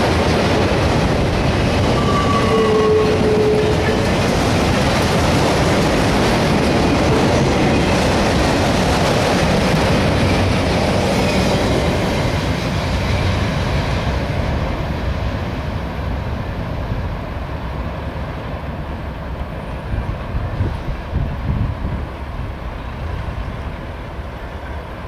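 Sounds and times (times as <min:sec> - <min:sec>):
steel wheels clattering on rails: 0:00.0 - 0:14.2
freight train rolling past: 0:00.0 - 0:25.0.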